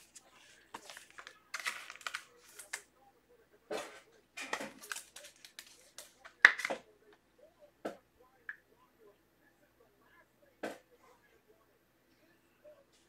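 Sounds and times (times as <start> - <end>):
cards rustling and crinkling: 0.0 - 2.9, 4.4 - 6.9.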